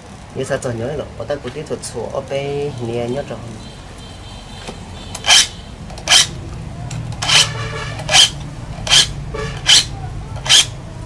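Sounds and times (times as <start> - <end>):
file rasping on saw teeth: 5.2 - 6.4, 7.2 - 10.8.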